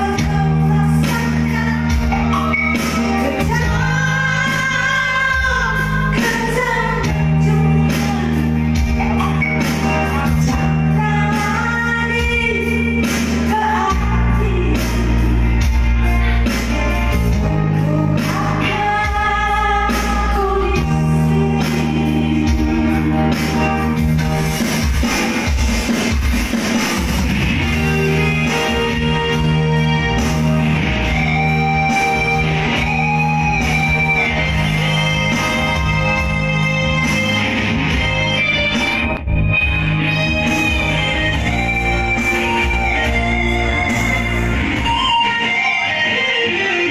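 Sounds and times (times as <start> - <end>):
woman singing into microphone: 0.0 - 16.7, 17.3 - 24.0
amplified backing music: 0.0 - 46.9.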